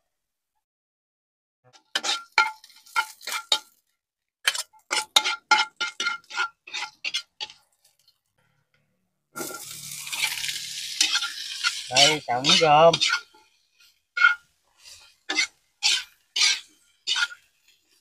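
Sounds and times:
metal spatula scraping a wok: 1.7 - 3.8, 4.5 - 8.1, 9.4 - 18.0
food sizzling in hot fat: 1.7 - 8.3, 9.3 - 18.0.

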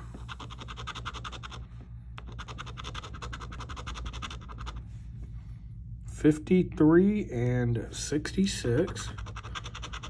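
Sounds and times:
coin scratching a lottery ticket: 0.2 - 1.6, 2.2 - 4.8, 8.7 - 10.0.

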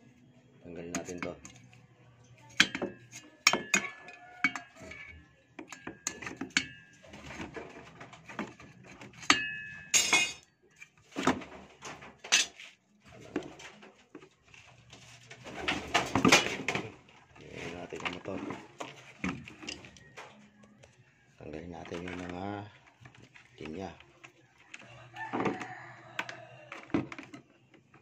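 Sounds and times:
handling and scraping noise: 0.0 - 28.0
metal clinks and rattles: 9.2 - 10.4.

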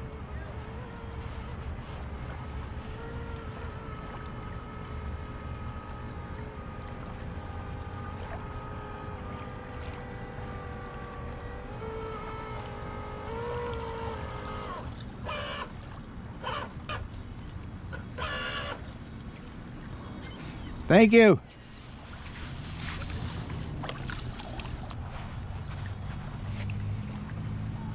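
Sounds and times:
motor whining: 0.0 - 15.8.

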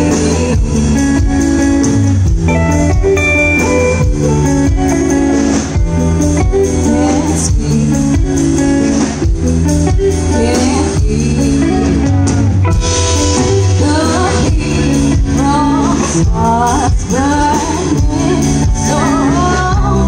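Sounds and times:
woman singing: 0.0 - 1.6, 6.5 - 9.0, 10.0 - 12.3, 13.7 - 20.0
drum kit: 0.0 - 20.0
electric bass: 0.0 - 20.0
electric guitars: 0.0 - 20.0.

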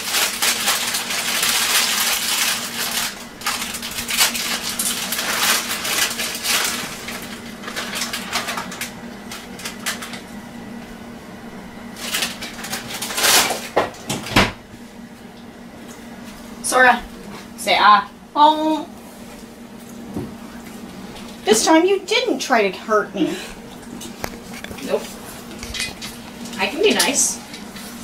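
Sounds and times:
kitchen handling rustle: 0.0 - 10.3, 12.0 - 14.6, 23.2 - 28.0
steady low hum: 0.0 - 28.0.

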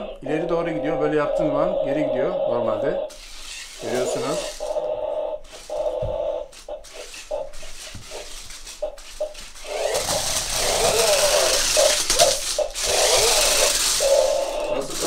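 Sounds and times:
gears rattling: 3.1 - 15.0
toy car electric motor whining: 3.1 - 15.0.

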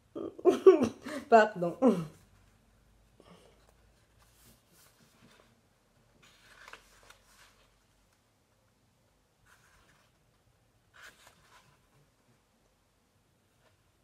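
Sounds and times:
paper sheets rustling: 3.8 - 8.2.

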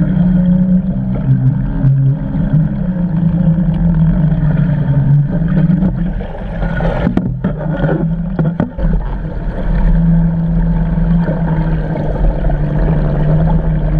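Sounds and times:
underwater machinery hum: 0.0 - 13.9
watery rushing noise: 0.0 - 13.9.

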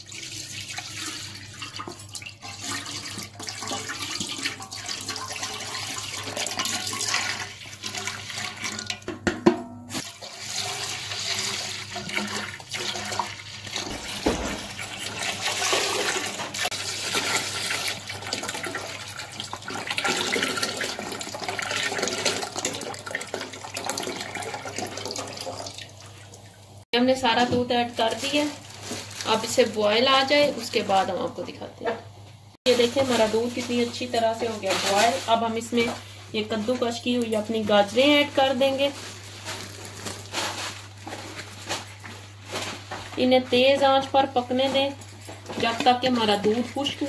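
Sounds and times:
milk pouring into a metal pot: 0.0 - 9.0, 10.1 - 26.4.

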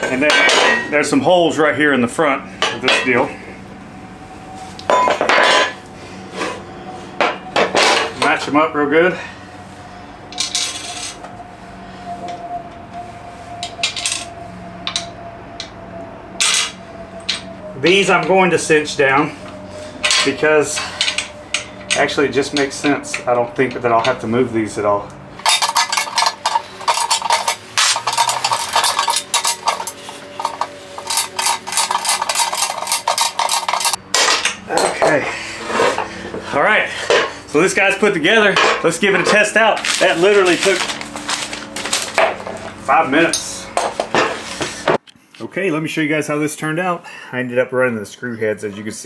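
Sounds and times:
metal parts clinking: 10.3 - 11.2, 13.6 - 15.7, 16.4 - 17.5, 20.0 - 23.3, 25.4 - 35.1, 38.5 - 44.4.

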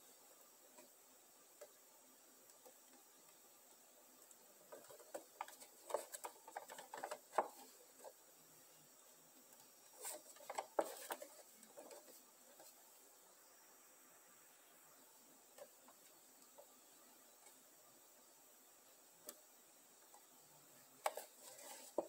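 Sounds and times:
cardboard box handling noise: 10.0 - 12.7.

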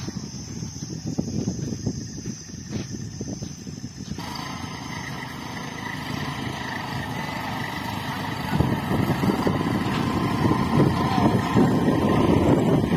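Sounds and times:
tractor diesel engine under load: 4.0 - 12.9.

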